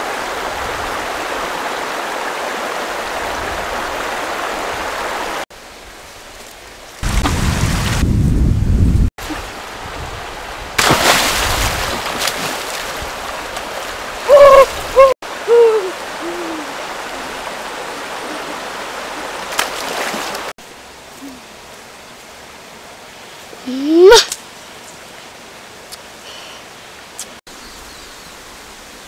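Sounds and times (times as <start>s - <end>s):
stream water rushing: 0.0s - 8.1s, 9.2s - 27.4s
hoot-like calls: 14.3s - 19.3s.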